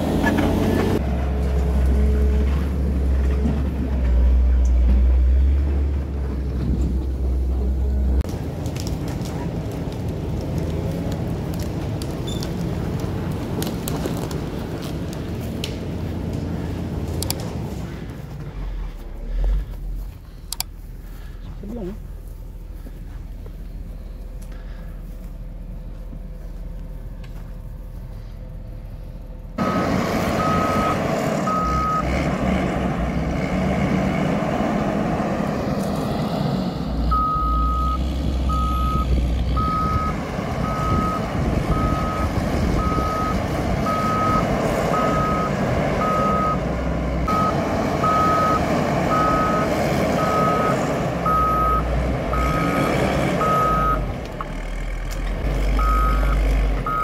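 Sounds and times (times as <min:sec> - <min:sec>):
diesel engine under load: 0:00.0 - 0:57.0
reversing alarm beeping: 0:29.6 - 0:32.1, 0:37.1 - 0:46.6, 0:47.3 - 0:52.8, 0:53.4 - 0:54.0, 0:55.8 - 0:57.0.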